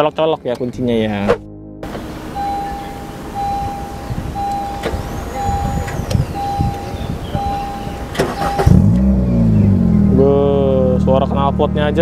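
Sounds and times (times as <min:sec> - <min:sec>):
car engine starting: 0:01.2 - 0:12.0
dashboard warning chime beeping: 0:01.8 - 0:09.0.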